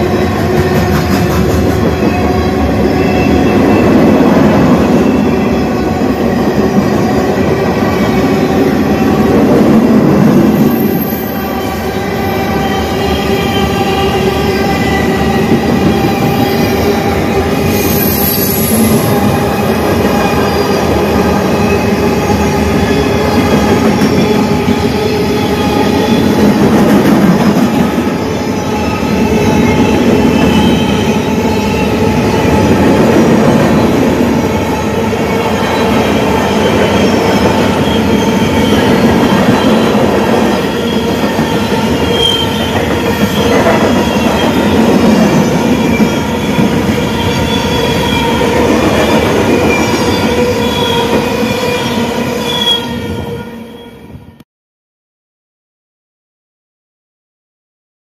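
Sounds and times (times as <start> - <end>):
freight train cars rolling: 12.4 - 53.3
metallic wheel squeal: 49.6 - 54.0.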